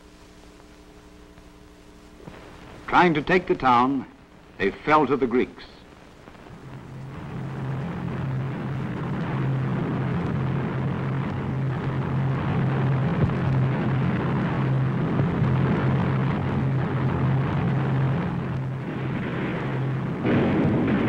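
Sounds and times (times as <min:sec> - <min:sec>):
rushing noise: 0:06.3 - 0:21.0.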